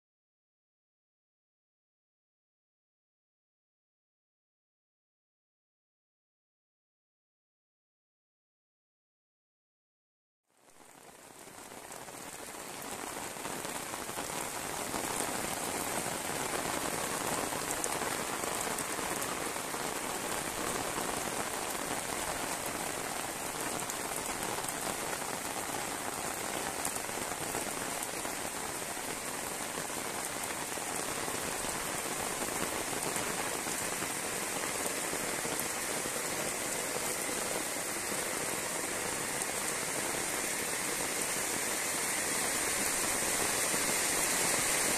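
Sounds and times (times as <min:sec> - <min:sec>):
heavy rain on pavement and roofs: 0:10.5 - 0:44.9.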